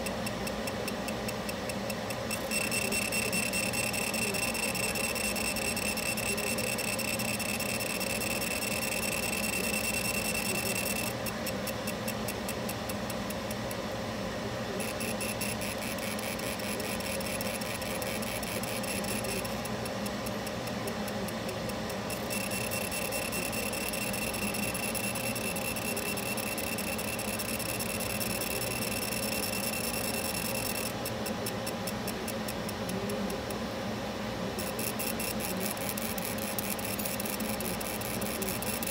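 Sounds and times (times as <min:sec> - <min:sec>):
rapid even ticking: 0:00.0 - 0:13.8
laser engraver whine: 0:00.0 - 0:38.9.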